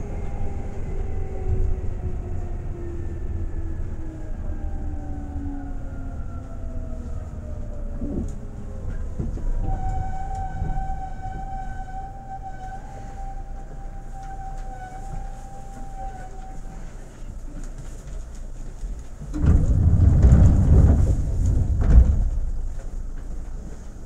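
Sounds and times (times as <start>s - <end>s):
electric train rumble: 0.0s - 24.0s
train motor tones: 7.9s - 17.6s.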